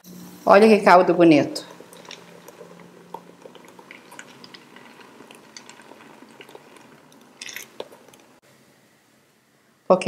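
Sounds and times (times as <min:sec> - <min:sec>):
thick puree pouring and plopping: 0:01.6 - 0:08.4.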